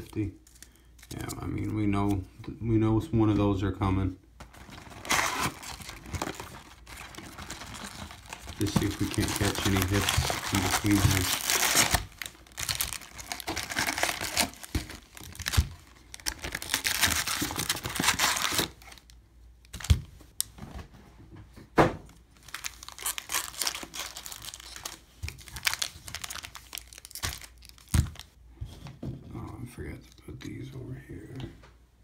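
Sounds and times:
foil packs crinkling and rustling: 4.4 - 20.0, 22.4 - 28.4.

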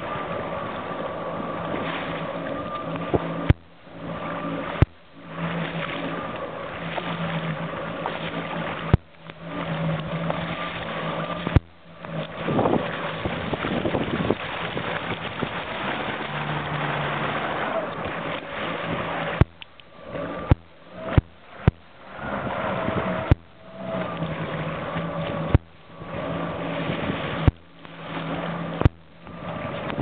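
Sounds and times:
motorboat engine running: 0.0 - 30.0
water and wind noise: 0.0 - 30.0
sharp clicks: 19.4 - 19.9.

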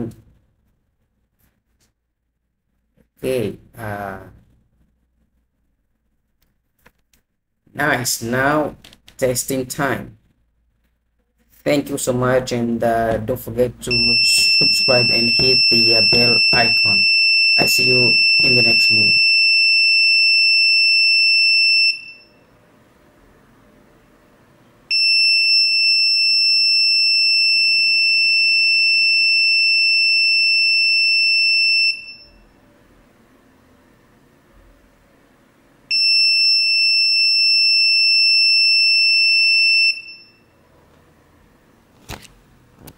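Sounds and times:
high-pitched buzzer alarm tone: 13.9 - 22.5, 24.9 - 32.6, 35.9 - 40.6.

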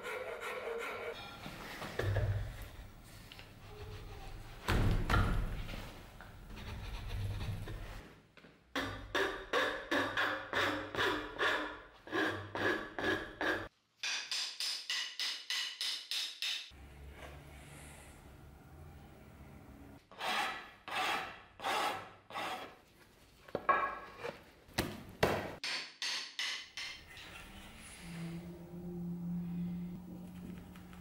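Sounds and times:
file rasping on wood: 0.0 - 1.2, 8.8 - 13.7.

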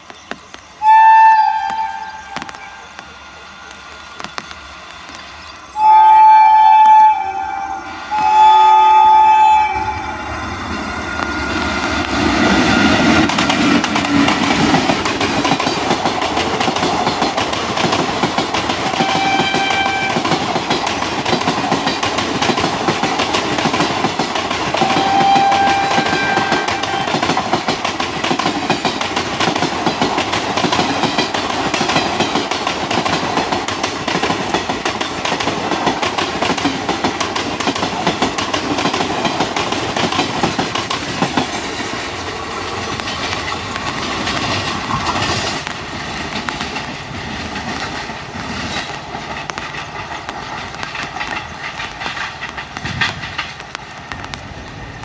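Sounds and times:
train wheel and rail noise: 0.0 - 55.0
locomotive horn blasts: 0.8 - 2.8, 5.8 - 10.3, 18.9 - 20.4, 24.8 - 27.2
clickety-clack over rail joints: 11.1 - 55.0.

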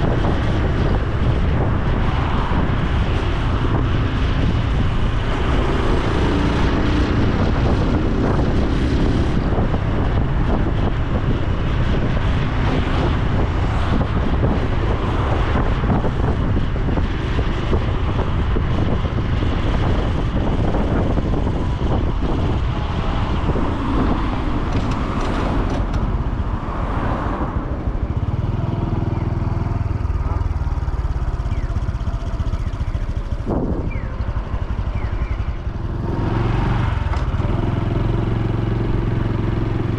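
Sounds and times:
wind noise on microphone: 0.0 - 39.9
motorcycle engine running: 27.6 - 39.9.

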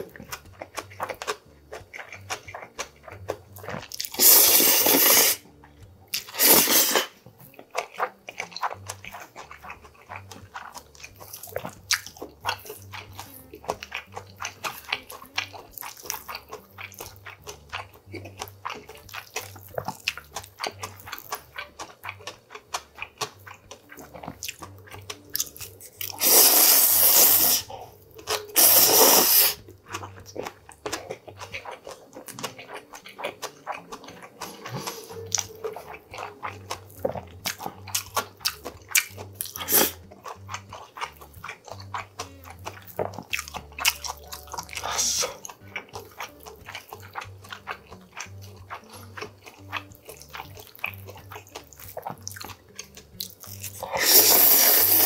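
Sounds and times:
chewing: 0.0 - 55.0
wet mouth clicks: 0.0 - 55.0
loud noodle slurps: 4.1 - 5.4, 6.2 - 7.2, 26.1 - 27.8, 28.6 - 29.6, 39.6 - 40.0, 53.8 - 55.0.

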